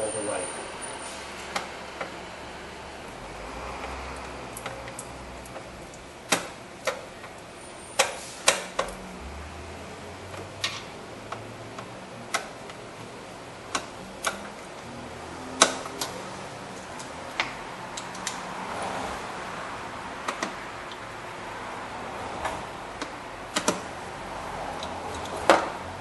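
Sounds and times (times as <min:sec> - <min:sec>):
hand tool clicking and knocking: 0:23.0 - 0:23.8.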